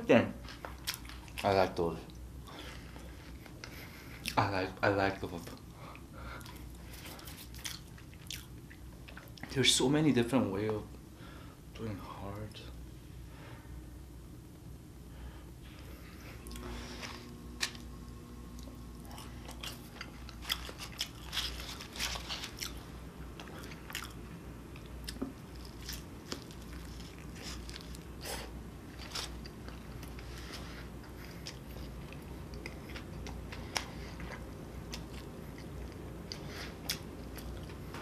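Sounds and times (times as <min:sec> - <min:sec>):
person chewing food: 0:00.4 - 0:01.4, 0:02.1 - 0:04.5, 0:05.4 - 0:09.5, 0:16.3 - 0:17.9, 0:18.5 - 0:38.0.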